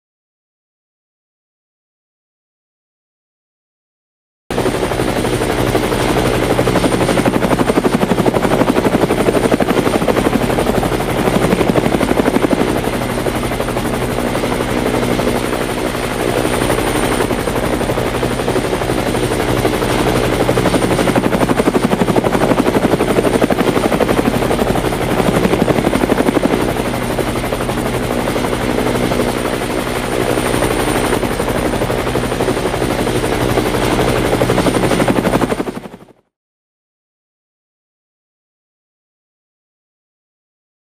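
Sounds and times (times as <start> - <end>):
helicopter engine drone: 4.5 - 36.2
helicopter rotor chop: 4.5 - 36.2.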